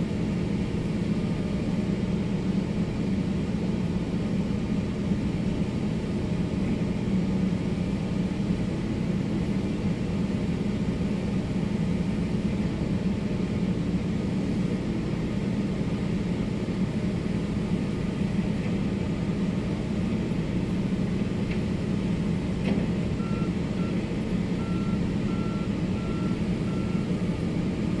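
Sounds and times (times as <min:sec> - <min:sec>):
excavator engine droning: 0:10.3 - 0:28.0
reversing alarm beeping: 0:23.2 - 0:24.0, 0:24.6 - 0:27.2.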